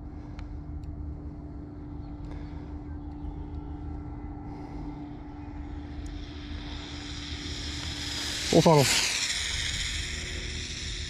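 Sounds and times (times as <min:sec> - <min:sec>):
wind rumble on microphone: 0:00.0 - 0:11.0
rc car motor whine: 0:02.2 - 0:11.0.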